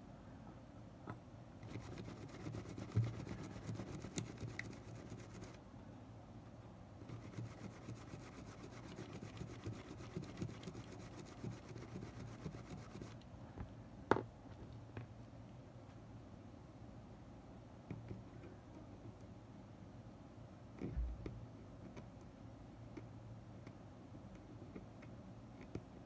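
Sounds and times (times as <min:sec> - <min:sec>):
swab scratchy rubbing on metal: 0:07.1 - 0:13.2.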